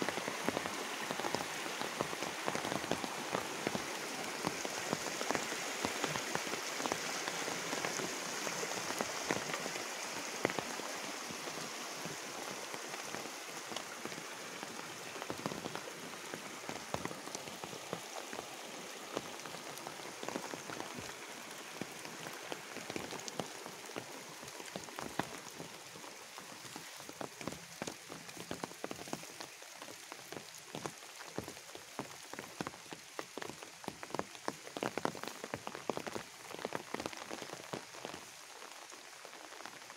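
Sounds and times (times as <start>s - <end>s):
rain falling on leaves: 0.0s - 39.9s
raindrop taps: 26.6s - 29.3s.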